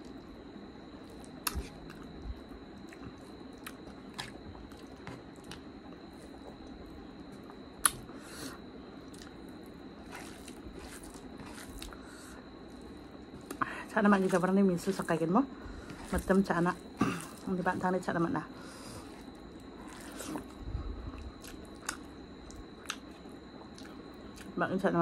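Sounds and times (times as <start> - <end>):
chewing with wet lip smacks: 1.0 - 5.6, 9.0 - 12.0, 19.3 - 24.5.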